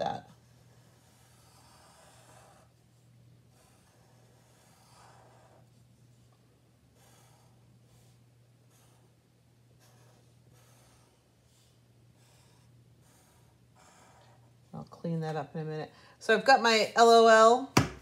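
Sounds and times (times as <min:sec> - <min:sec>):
steady low hum: 0:00.0 - 0:18.0
marker scratching on paper: 0:00.4 - 0:06.3, 0:06.9 - 0:14.5.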